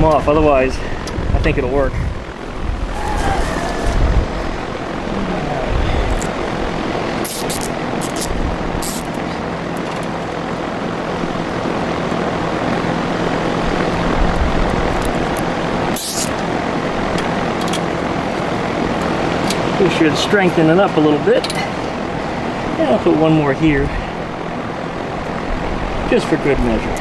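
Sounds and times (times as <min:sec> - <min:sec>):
drum fan rushing air: 0:00.6 - 0:09.7
zip tie clicks: 0:07.2 - 0:09.1, 0:16.0 - 0:16.4.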